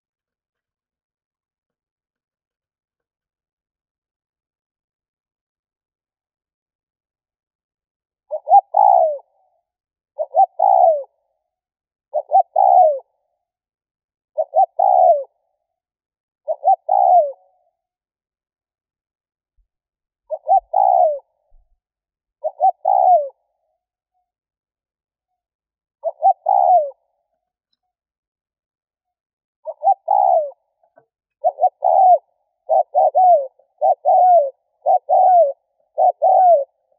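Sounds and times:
dove cooing: 0:08.3 - 0:09.5, 0:10.2 - 0:11.2, 0:12.1 - 0:13.1, 0:14.4 - 0:15.4, 0:16.4 - 0:17.7, 0:20.3 - 0:21.4, 0:22.4 - 0:23.6, 0:26.0 - 0:27.2, 0:29.6 - 0:36.9.

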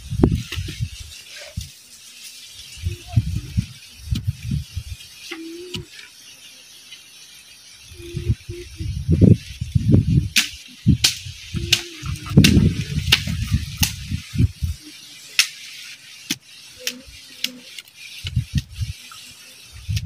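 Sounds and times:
wind rumble on microphone: 0:00.0 - 0:01.7, 0:02.7 - 0:05.1, 0:07.9 - 0:14.9, 0:18.2 - 0:19.0, 0:19.7 - 0:20.0.

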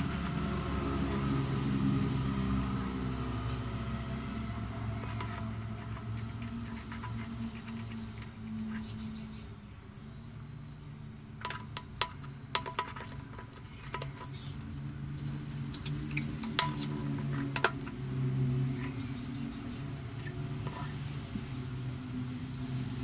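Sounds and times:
small metal clicks and scrapes: 0:03.5 - 0:09.5, 0:10.7 - 0:21.2.

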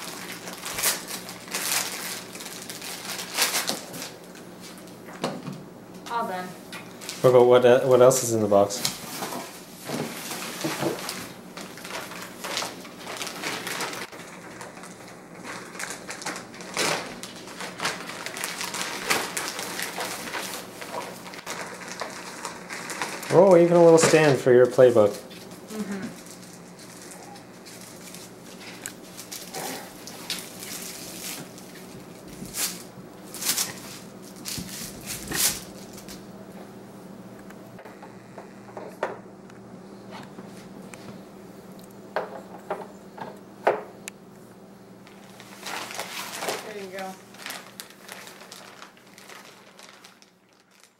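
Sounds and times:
plastic bag crinkling: 0:00.0 - 0:05.0, 0:08.0 - 0:36.2, 0:45.0 - 0:50.9
faint steady hum: 0:00.0 - 0:50.9.

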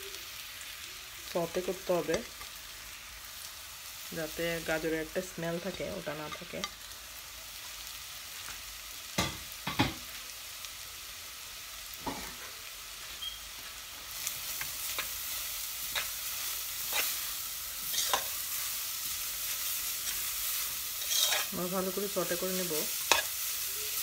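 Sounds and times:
carrots sizzling in a saucepan: 0:00.0 - 0:24.0
spoon scraping through carrots: 0:15.9 - 0:18.4, 0:20.0 - 0:21.6.

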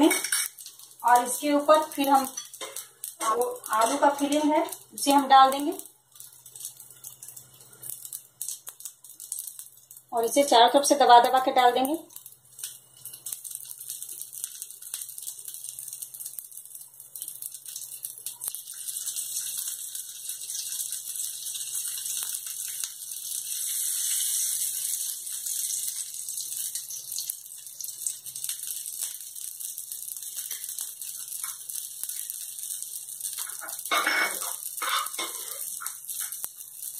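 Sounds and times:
batter sizzling in a frying pan: 0:00.0 - 0:36.9.

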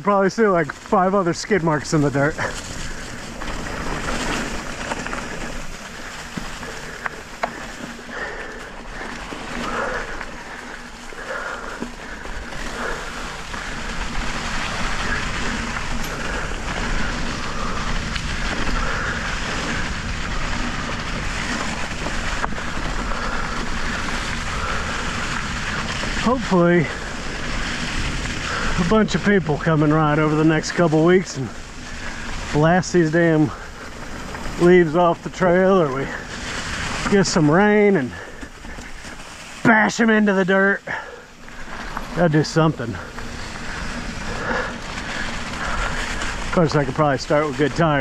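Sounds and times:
bike clicks and rattles: 0:00.0 - 0:48.0
bike tyres through dry leaves: 0:00.0 - 0:48.0
wind noise: 0:00.7 - 0:39.7.

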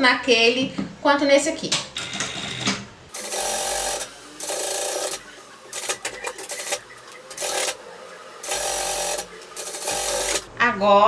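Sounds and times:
sewing machine stitching: 0:03.1 - 0:10.5.

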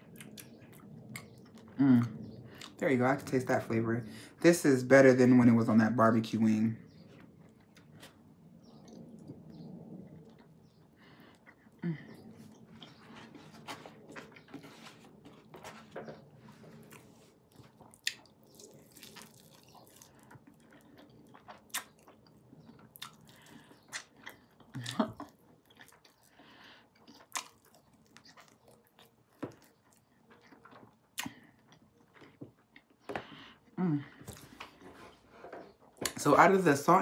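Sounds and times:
person chewing: 0:00.0 - 0:02.8, 0:06.9 - 0:15.9, 0:16.7 - 0:35.1
mouth clicks and smacks: 0:30.4 - 0:31.5.

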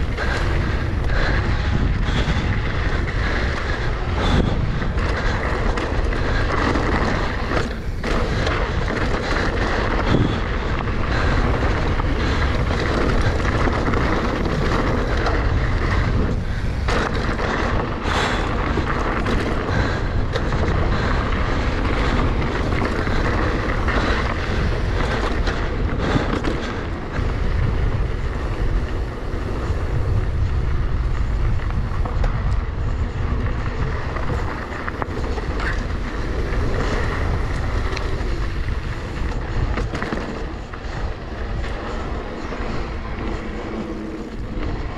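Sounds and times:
heavy low rumble: 0:00.0 - 0:44.9
wind buffeting microphone: 0:00.0 - 0:44.9.

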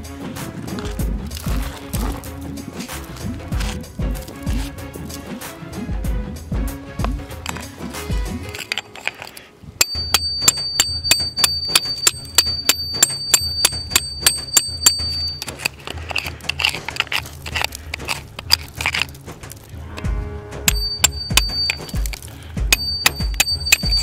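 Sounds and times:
rock chipping: 0:00.4 - 0:05.4, 0:07.0 - 0:20.1, 0:20.7 - 0:24.0
high metallic ring: 0:09.8 - 0:15.7, 0:20.7 - 0:22.1, 0:22.7 - 0:24.0
hammer striking chisel: 0:09.8 - 0:19.6, 0:20.7 - 0:24.0.

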